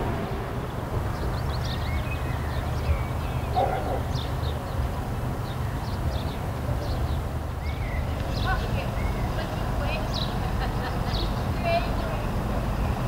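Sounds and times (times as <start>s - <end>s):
low rumble: 0.0s - 4.9s
small birds chirping: 0.7s - 13.0s
dog bark: 3.5s - 4.1s.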